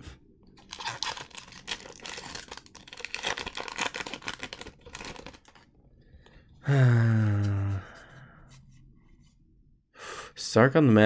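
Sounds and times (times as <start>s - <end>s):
foil wrapper crinkling and tearing: 0.6s - 5.7s.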